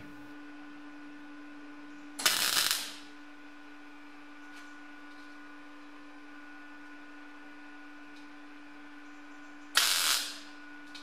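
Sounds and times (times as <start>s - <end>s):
steady hum: 0.0s - 11.0s
welding arc crackling: 2.2s - 3.1s, 9.8s - 10.5s.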